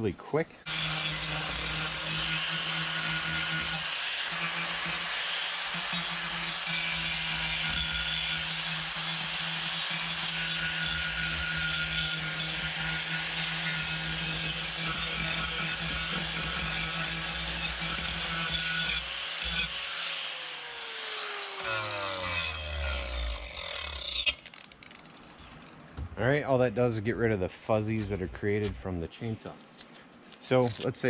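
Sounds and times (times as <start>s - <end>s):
angle grinder sanding wood: 0.7s - 24.6s.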